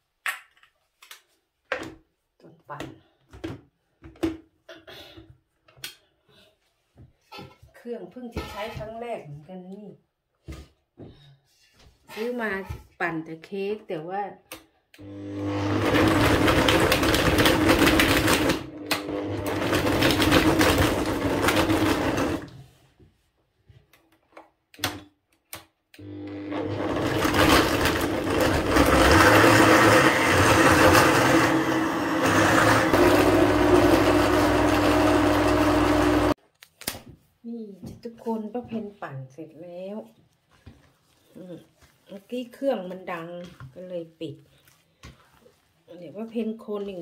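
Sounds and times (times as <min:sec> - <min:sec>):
blender running: 0:15.0 - 0:22.6, 0:26.0 - 0:36.4.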